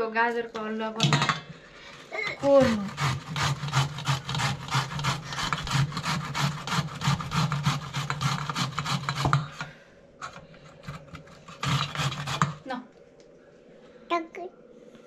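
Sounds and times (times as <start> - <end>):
grating on metal grater: 2.4 - 9.6, 10.9 - 12.6.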